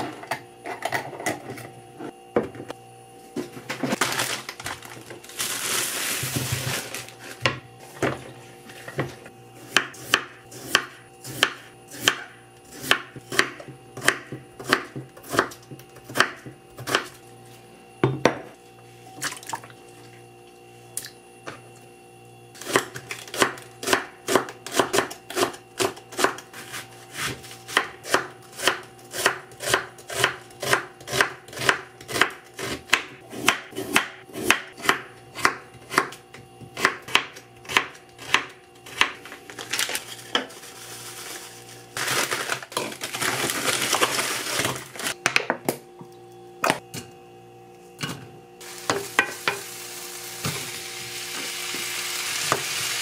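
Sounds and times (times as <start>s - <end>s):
knife chopping on wooden board: 9.6s - 17.2s, 22.7s - 39.2s.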